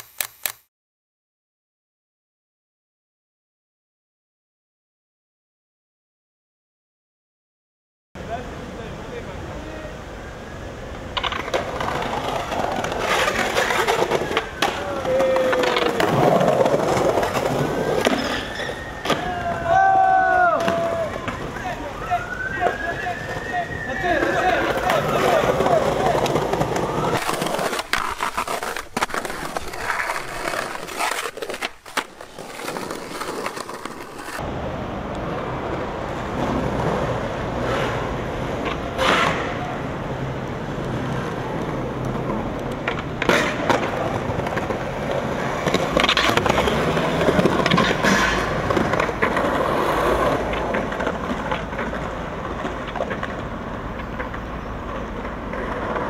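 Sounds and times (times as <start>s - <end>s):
skateboard wheels rolling on concrete: 8.2s - 56.0s
skateboard clacking on ground: 11.1s - 19.5s, 22.6s - 34.5s, 40.7s - 56.0s.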